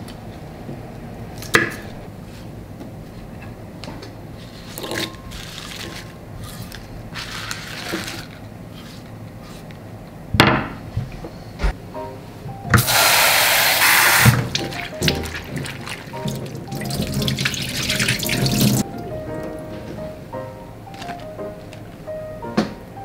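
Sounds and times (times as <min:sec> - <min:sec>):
leaves rustling: 0:04.4 - 0:09.6
tap water running into bowl: 0:12.8 - 0:18.8.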